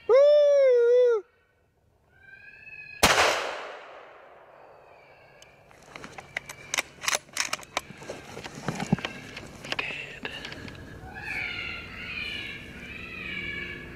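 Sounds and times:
rifle shot with echo: 0:03.0 - 0:05.2.

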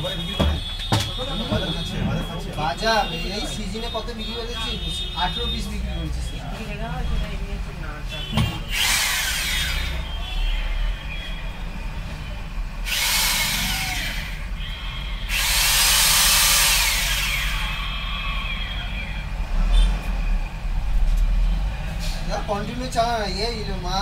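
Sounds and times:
electric drill whirring: 0:08.7 - 0:10.0, 0:12.8 - 0:17.8.

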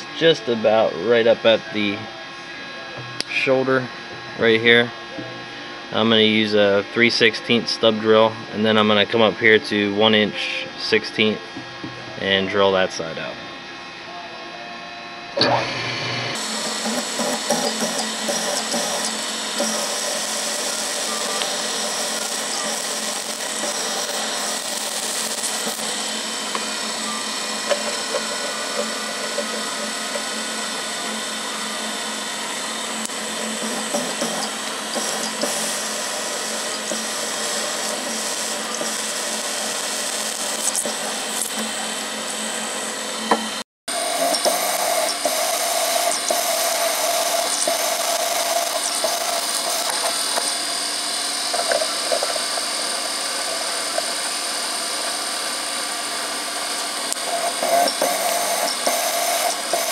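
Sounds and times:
milling machine drilling steel: 0:15.4 - 0:59.9.

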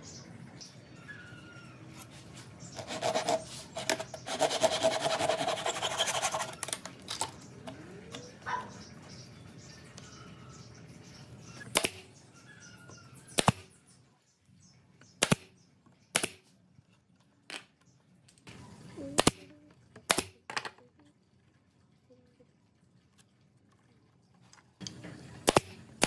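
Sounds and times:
nail gun shots into wood: 0:11.7 - 0:12.0, 0:13.4 - 0:13.7, 0:15.2 - 0:15.5, 0:16.1 - 0:16.4, 0:20.1 - 0:20.4, 0:25.4 - 0:25.8.

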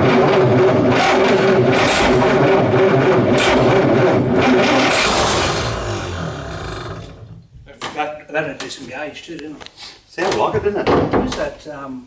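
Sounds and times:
boat engine revving: 0:00.0 - 0:07.4.

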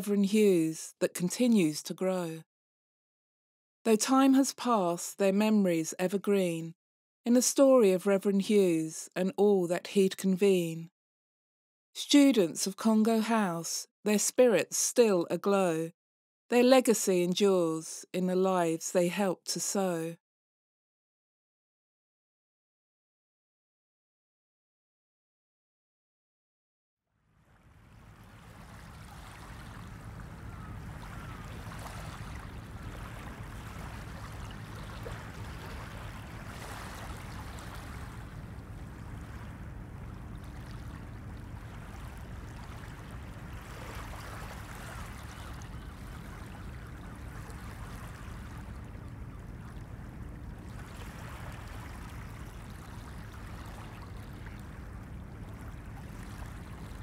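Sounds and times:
flowing water: 0:27.3 - 0:57.0
low steady hum: 0:27.5 - 0:57.0.

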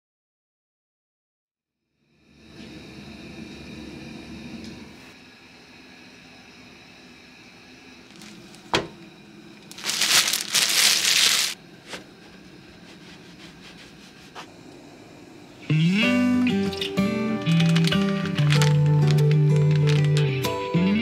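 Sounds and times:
loud rustle: 0:09.7 - 0:11.6.

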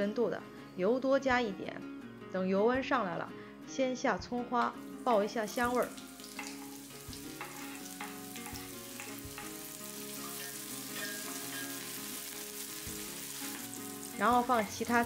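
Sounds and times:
scallion sizzling in hot oil: 0:04.8 - 0:15.0.

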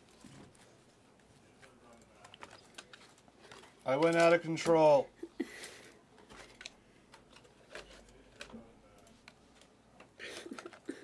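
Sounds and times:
faint clicks and taps: 0:00.0 - 0:04.8.

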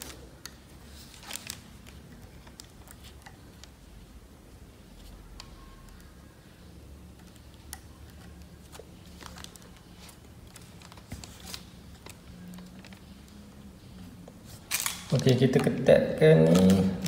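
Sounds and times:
fingers handling wires and plastic: 0:00.0 - 0:03.8, 0:07.1 - 0:13.4, 0:16.4 - 0:17.0.

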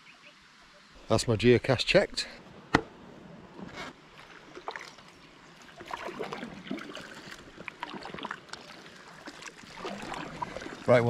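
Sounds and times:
paddle splashing in water: 0:03.8 - 0:11.0.

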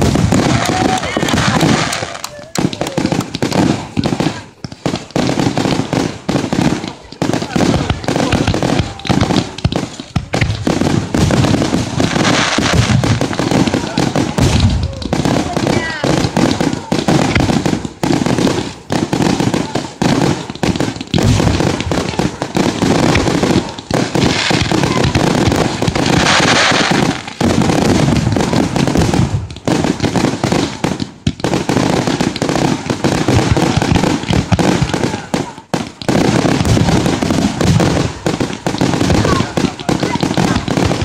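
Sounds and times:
crackling hiss of fireworks: 0:00.0 - 0:41.0
fireworks booms and pops: 0:00.0 - 0:41.0.

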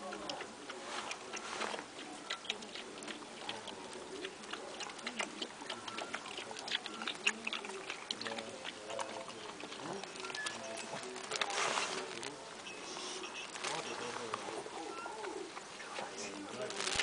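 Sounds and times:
dogs' claws clicking on gritty ground: 0:01.1 - 0:12.4.

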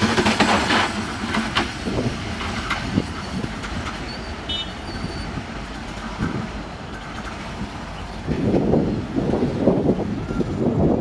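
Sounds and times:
train wheel knocks: 0:00.0 - 0:04.0
train wheels rumbling: 0:00.0 - 0:11.0.

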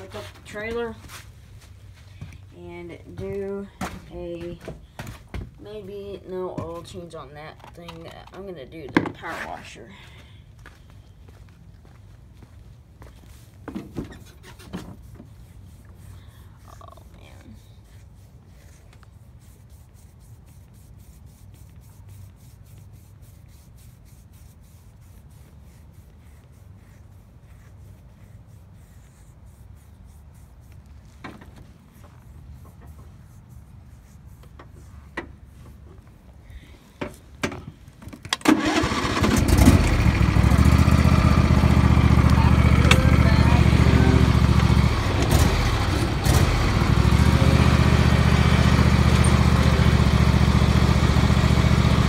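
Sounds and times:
lawn tractor engine running: 0:38.4 - 0:52.0.

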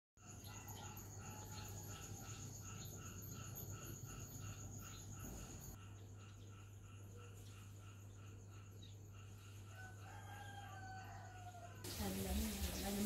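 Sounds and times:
high insect trill: 0:00.2 - 0:13.0.

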